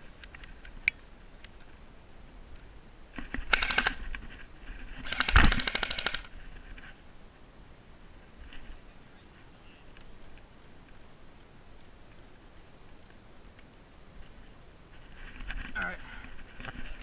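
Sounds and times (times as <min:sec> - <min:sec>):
sharp clicks: 0:03.4 - 0:04.2, 0:05.0 - 0:06.3, 0:09.9 - 0:13.7
airsoft gun automatic bursts: 0:03.5 - 0:04.1, 0:05.0 - 0:06.3.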